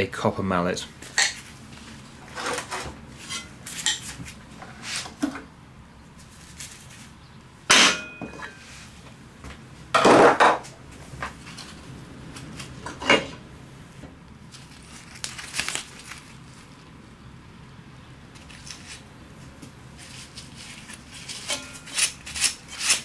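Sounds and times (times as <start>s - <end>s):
loud ringing metal strike: 7.7s - 8.3s.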